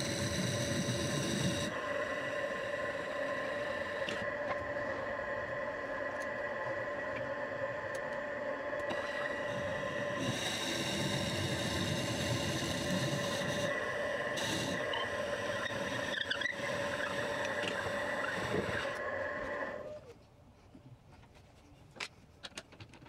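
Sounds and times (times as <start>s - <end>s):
wood lathe whining: 8.9s - 19.9s.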